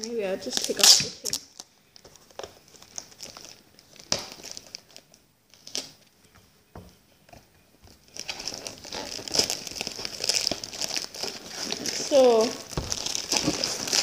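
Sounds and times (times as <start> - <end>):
packing tape peeling: 0.5 - 1.6, 8.1 - 14.0
plastic mailer crinkling: 8.1 - 14.0.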